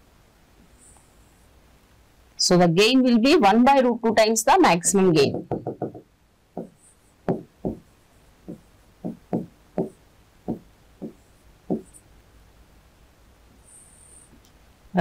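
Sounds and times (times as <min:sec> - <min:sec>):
marker pen tapping on board: 0:05.3 - 0:06.0, 0:06.6 - 0:07.9, 0:08.5 - 0:12.0.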